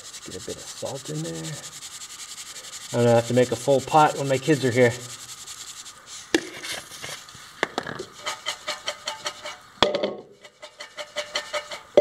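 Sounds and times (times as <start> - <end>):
popcorn rattling in metal pot: 0.0 - 6.0, 7.8 - 12.0
pot knocking: 7.6 - 12.0.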